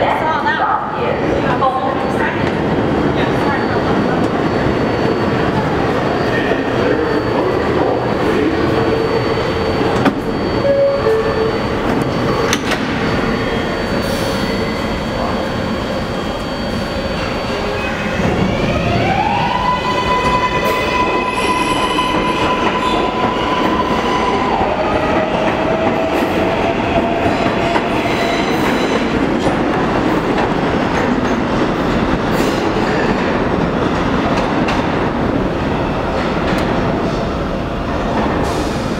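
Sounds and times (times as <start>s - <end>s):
subway motor whine: 0.0s - 38.9s.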